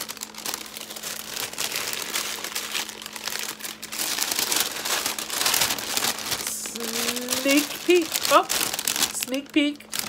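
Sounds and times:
paper gift bag crinkling: 0.0 - 10.0.

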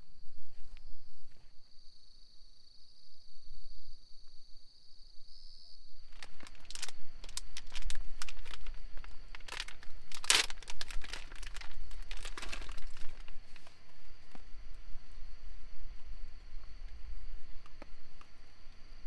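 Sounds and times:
high insect trill: 0.0 - 19.0
crinkling and rustling: 6.0 - 14.8.

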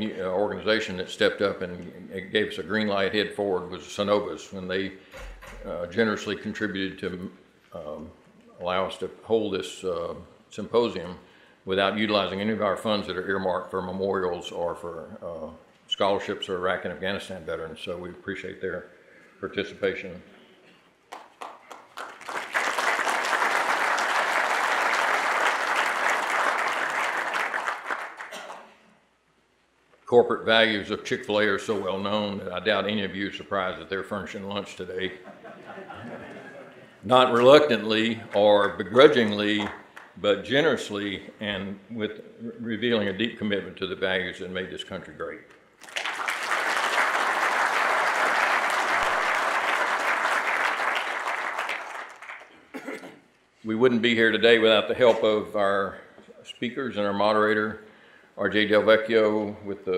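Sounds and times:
audience applauding: 21.1 - 28.7, 45.8 - 52.6.

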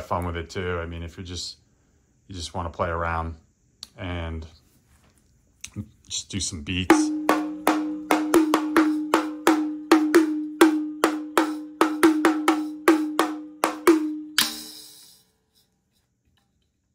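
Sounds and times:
small metal cymbal hit: 7.1 - 15.6.

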